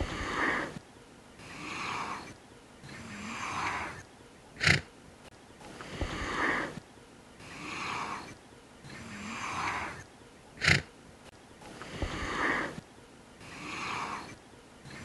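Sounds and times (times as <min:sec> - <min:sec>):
giraffe breathy snuffles: 0:00.0 - 0:00.8, 0:04.6 - 0:04.9, 0:05.7 - 0:06.8, 0:07.4 - 0:10.0, 0:10.6 - 0:10.9, 0:11.6 - 0:12.8, 0:13.4 - 0:15.0
giraffe snorting: 0:00.0 - 0:00.8, 0:01.4 - 0:04.0, 0:04.6 - 0:04.9, 0:05.6 - 0:06.8, 0:07.4 - 0:11.0, 0:11.6 - 0:12.8, 0:13.4 - 0:15.0.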